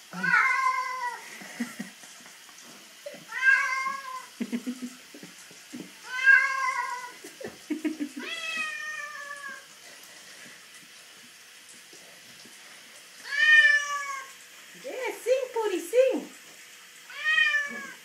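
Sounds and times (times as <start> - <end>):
bath water: 0.0 - 18.0
cat meowing: 0.2 - 1.2, 3.3 - 4.3, 6.0 - 7.1, 8.2 - 9.6, 13.2 - 14.3, 17.1 - 18.0.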